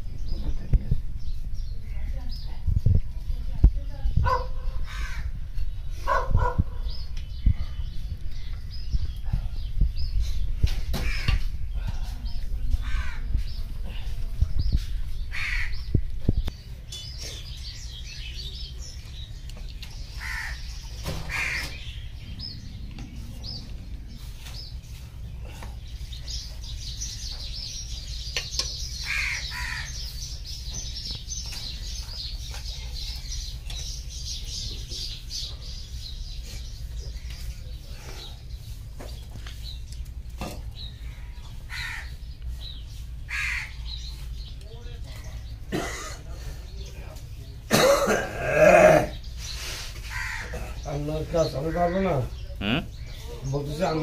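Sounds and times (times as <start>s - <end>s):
steady low hum: 0.0s - 51.0s
small birds chirping: 0.0s - 54.0s
crows cawing: 4.8s - 5.3s, 11.0s - 11.5s, 12.8s - 13.3s, 15.3s - 15.9s, 20.1s - 22.0s, 29.0s - 30.0s, 41.7s - 42.2s, 43.3s - 44.0s, 50.0s - 50.9s.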